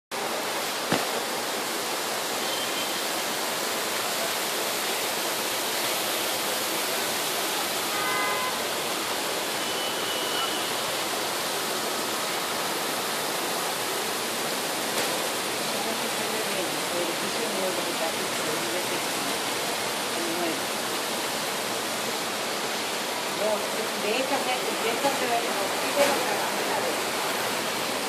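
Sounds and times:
heavy rain pouring: 0.1 - 28.0
sharp knock: 0.9 - 1.2.

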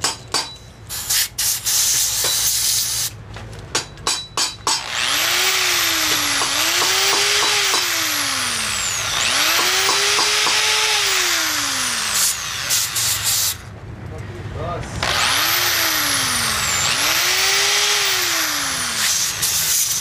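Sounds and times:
blow nozzle hiss: 0.9 - 3.1, 12.2 - 13.6
drill press motor running: 4.8 - 13.6.

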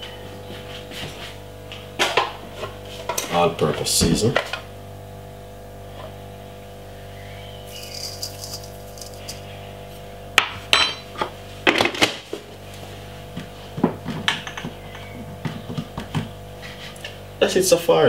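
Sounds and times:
metal spoon clinking on steel bowl: 7.7 - 9.4
seasoning rattle: 7.7 - 9.8.

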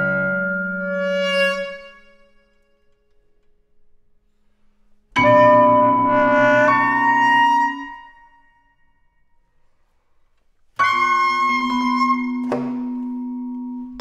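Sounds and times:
saxophone vibraphone and piano chords: 5.2 - 7.8.

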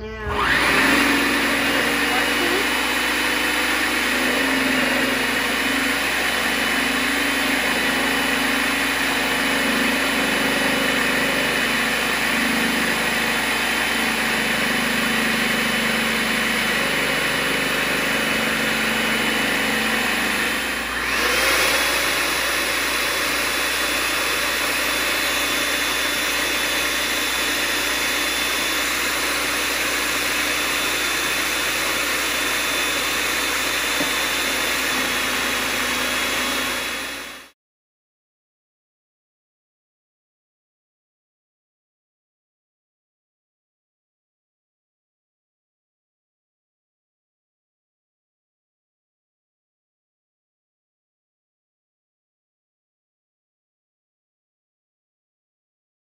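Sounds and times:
vegetable slicer motor whining: 0.0 - 37.6.

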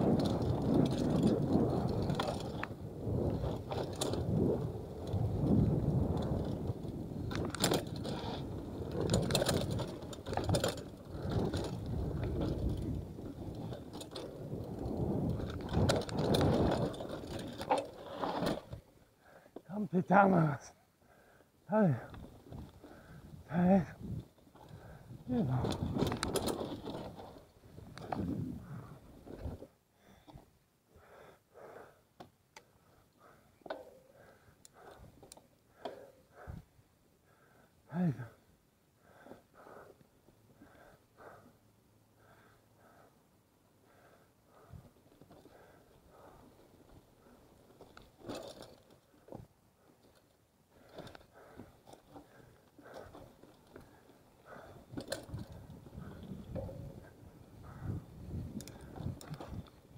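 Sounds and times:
clatters from bumps: 0.0 - 4.3, 7.2 - 18.8, 24.2 - 28.4
bike freehub and chain rattling: 0.0 - 18.8, 22.0 - 28.9, 50.0 - 59.9
person breathing with exertion: 21.0 - 23.5, 24.6 - 26.0, 29.9 - 47.6, 50.7 - 59.6
tyres rumbling on dirt: 21.9 - 29.6.

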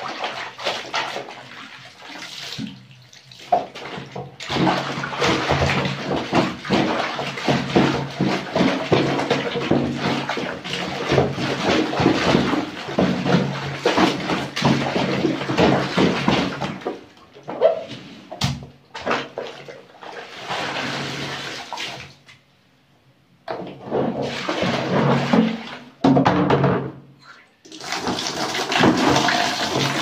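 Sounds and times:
bare feet treading in soapy water: 0.0 - 17.2, 24.0 - 25.9
water pouring onto tiled floor: 27.7 - 30.0.

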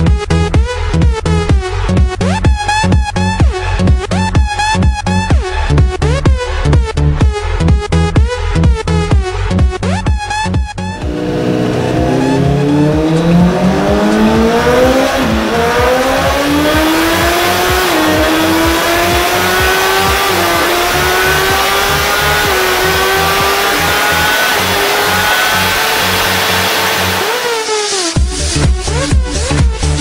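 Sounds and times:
motorcycle engine at full throttle: 11.0 - 28.3
electronic dance music: 11.0 - 30.0.

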